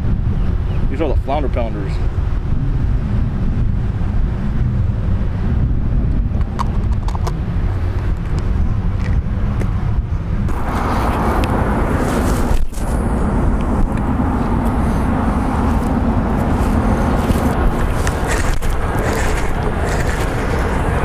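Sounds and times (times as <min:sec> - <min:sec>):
wind buffeting microphone: 0:00.0 - 0:21.0
fishing rod swishing in cast: 0:10.5 - 0:13.0, 0:15.8 - 0:21.0.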